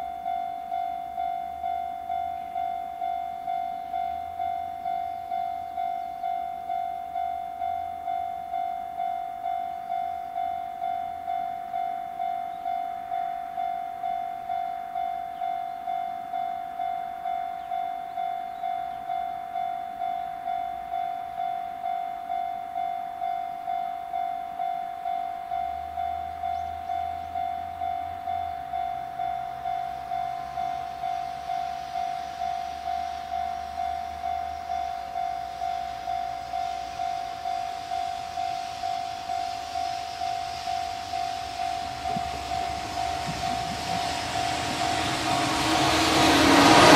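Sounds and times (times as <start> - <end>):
approaching train: 0.0 - 46.9
level crossing bell ringing: 19.4 - 45.3.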